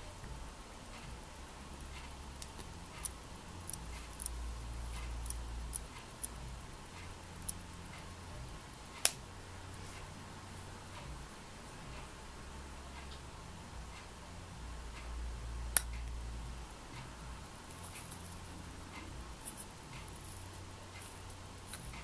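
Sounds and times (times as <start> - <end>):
watch crown clicks: 1.9 - 8.3.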